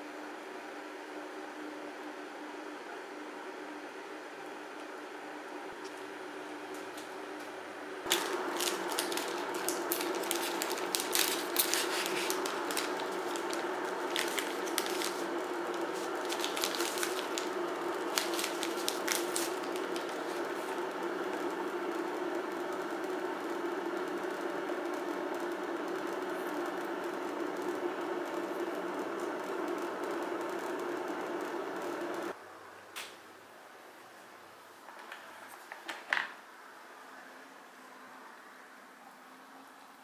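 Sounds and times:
electric kettle heating water: 0.0 - 32.4
foil packet crinkling and tearing: 8.1 - 20.8.

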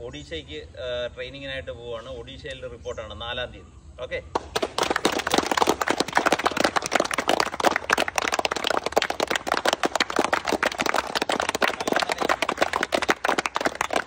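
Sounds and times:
people clapping: 4.3 - 14.0.

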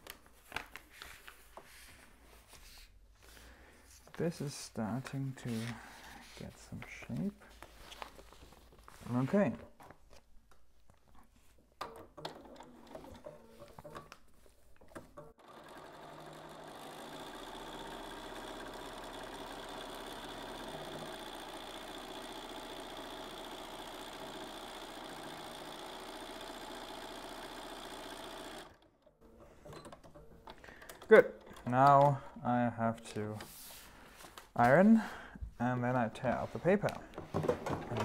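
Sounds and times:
sewing machine stitching: 11.8 - 14.1, 14.8 - 32.2.

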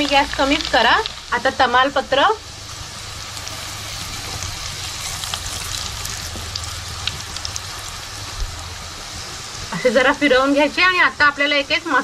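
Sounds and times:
garlic sizzling in hot oil: 0.0 - 12.0
small pops and crackles: 5.2 - 8.6.

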